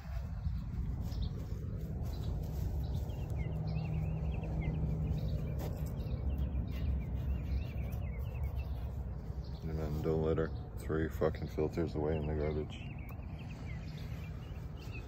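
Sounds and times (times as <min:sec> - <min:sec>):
wind rumble on microphone: 0:00.0 - 0:10.8
small bird chirping: 0:00.1 - 0:15.0.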